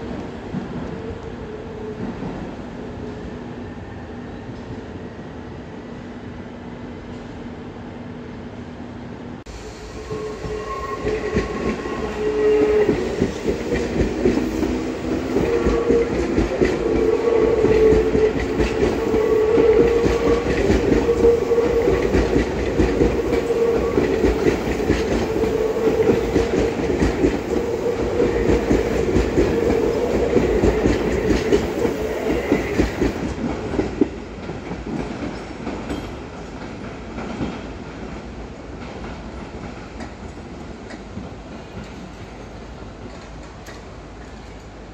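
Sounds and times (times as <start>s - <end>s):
train wheels clacking: 9.9s - 44.8s.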